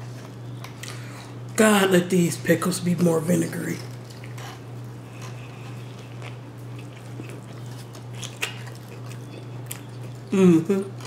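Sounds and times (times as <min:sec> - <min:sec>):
steady low hum: 0:00.0 - 0:11.0
person chewing: 0:03.9 - 0:11.0.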